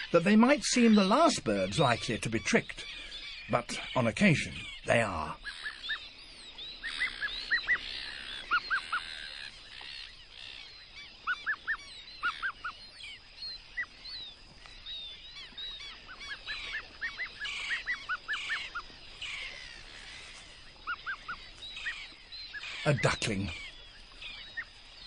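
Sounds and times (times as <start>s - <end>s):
gulls calling: 0.0s - 25.0s.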